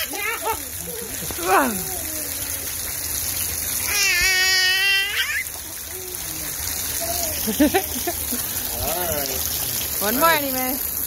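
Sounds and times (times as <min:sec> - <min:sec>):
toddler babbling and laughing: 0:00.0 - 0:03.0, 0:03.8 - 0:08.2
water dripping and splashing: 0:00.0 - 0:11.0
toddler squealing: 0:03.8 - 0:05.6.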